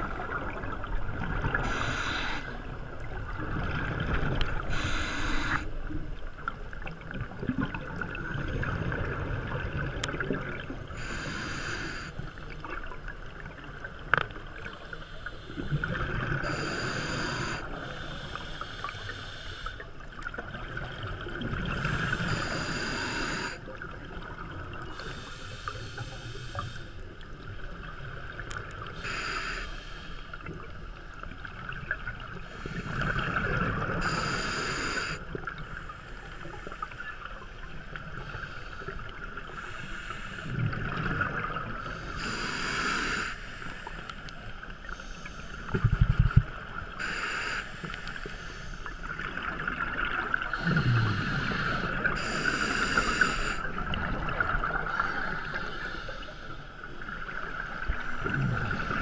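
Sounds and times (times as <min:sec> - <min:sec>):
diver breathing through regulator: 0:01.5 - 0:02.6, 0:04.6 - 0:05.7, 0:11.0 - 0:12.4, 0:14.8 - 0:19.9, 0:21.7 - 0:23.7, 0:24.9 - 0:27.0, 0:28.9 - 0:30.4, 0:32.4 - 0:36.8, 0:38.2 - 0:40.7, 0:41.8 - 0:44.3, 0:46.9 - 0:49.3, 0:50.4 - 0:56.8.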